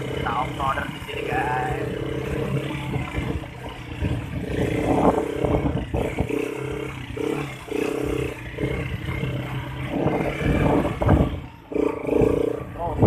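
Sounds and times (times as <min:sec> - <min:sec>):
atv engine revving: 0:00.0 - 0:13.0.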